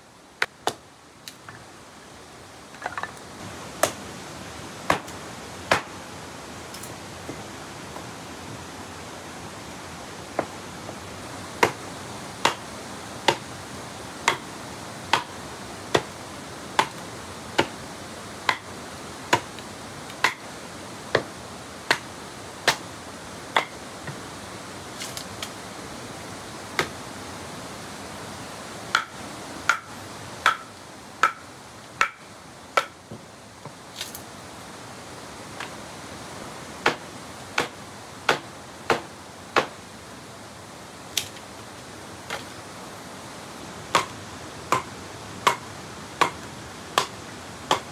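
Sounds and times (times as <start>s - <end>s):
steady background hiss: 0.0s - 47.9s
machete striking wooden stick: 30.4s - 30.6s, 32.0s - 32.2s, 43.9s - 44.1s, 44.7s - 46.4s, 47.7s - 47.9s.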